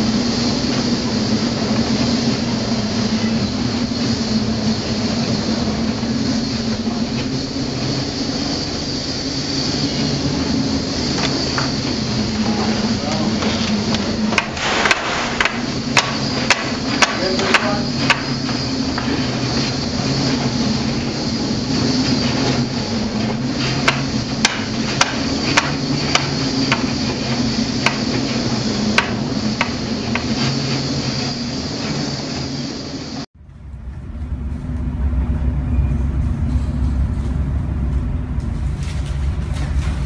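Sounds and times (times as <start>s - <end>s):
ship engine drone: 0.0s - 40.0s
sharp knocks and rattles: 21.8s - 30.7s.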